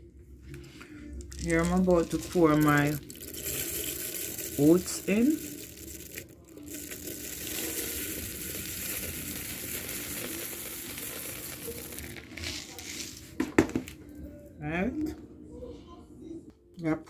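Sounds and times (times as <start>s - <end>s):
oats being poured: 1.3s - 14.0s.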